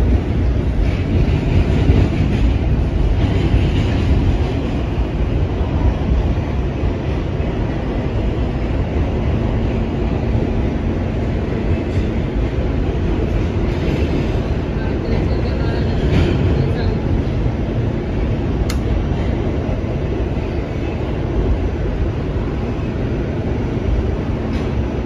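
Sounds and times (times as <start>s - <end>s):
subway train rumbling in tunnel: 0.0s - 25.0s.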